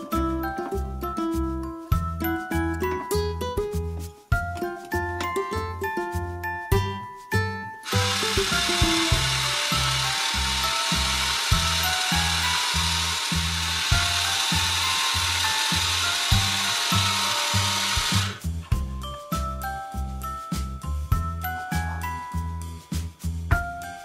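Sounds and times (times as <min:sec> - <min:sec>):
background music with steady beat: 0:00.0 - 0:24.0
toy blender whirring: 0:07.8 - 0:18.5.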